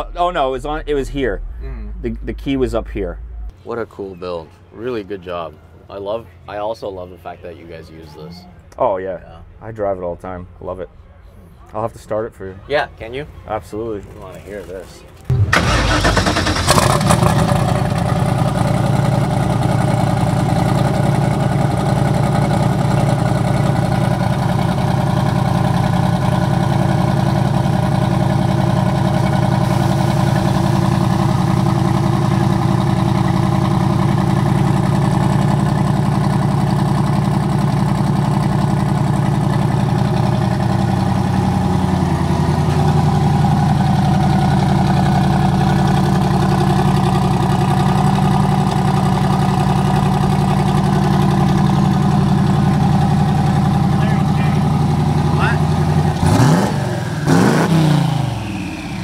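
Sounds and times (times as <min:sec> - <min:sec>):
engine idling: 0:15.3 - 0:59.0.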